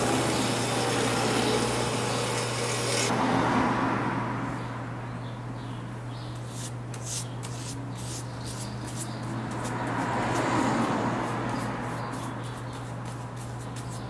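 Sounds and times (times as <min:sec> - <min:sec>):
brush bristles scratching leather: 0:06.5 - 0:14.0.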